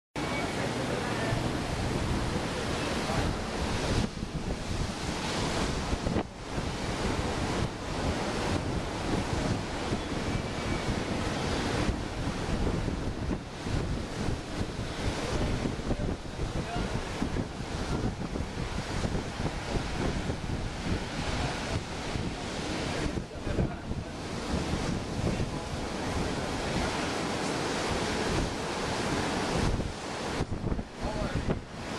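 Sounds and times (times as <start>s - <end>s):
storm surf breaking on beach: 0.2s - 31.9s
wind buffeting microphone: 0.4s - 31.9s.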